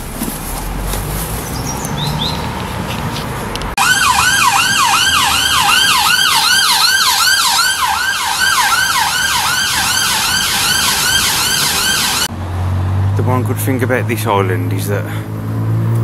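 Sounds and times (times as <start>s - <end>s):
siren yelping: 3.8s - 12.3s.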